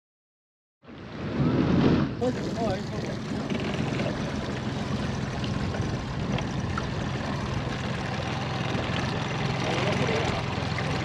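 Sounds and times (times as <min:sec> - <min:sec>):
wind: 0:00.8 - 0:11.0
outboard motor running: 0:02.2 - 0:11.0.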